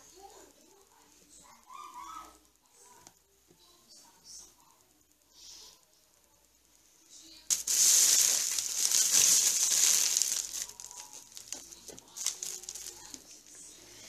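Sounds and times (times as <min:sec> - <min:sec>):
plastic crinkling and rustling: 0:07.5 - 0:14.0.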